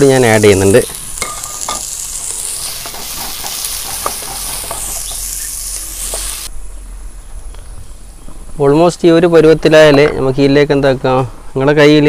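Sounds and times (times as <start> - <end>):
vegetables sizzling in hot oil: 0.0 - 6.5.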